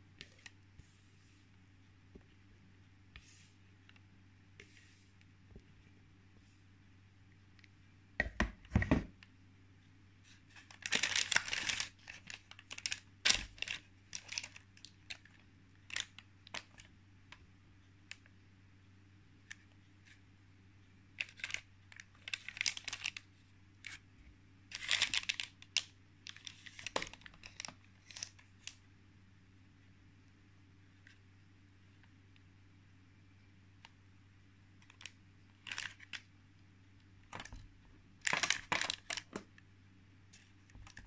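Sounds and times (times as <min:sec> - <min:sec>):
baking paper rustling: 0:10.3 - 0:14.6.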